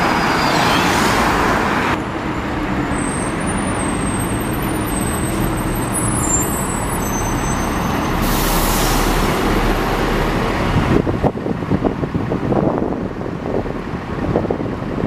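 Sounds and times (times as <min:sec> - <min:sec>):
bus engine running: 0:00.0 - 0:15.0
air brakes hissing: 0:06.0 - 0:09.5.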